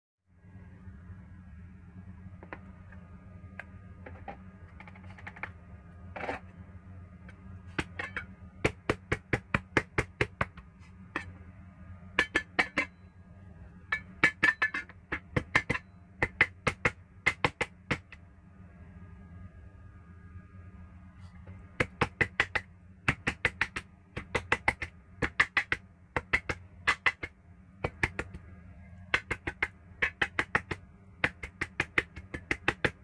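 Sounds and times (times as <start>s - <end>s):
low hum: 0.3s - 33.0s
cleaver chopping on wooden board: 21.8s - 28.4s, 29.2s - 33.0s.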